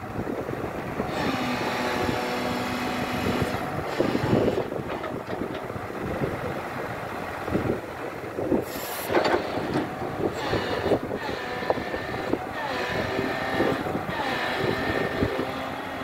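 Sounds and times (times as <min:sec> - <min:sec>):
excavator diesel engine running: 0:00.0 - 0:16.0
machine whine: 0:01.1 - 0:04.7, 0:09.0 - 0:16.0
brief hydraulic hiss: 0:08.6 - 0:09.4.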